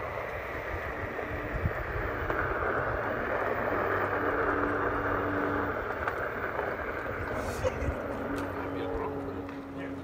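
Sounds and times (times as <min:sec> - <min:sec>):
wind on phone microphone: 0:00.0 - 0:04.2.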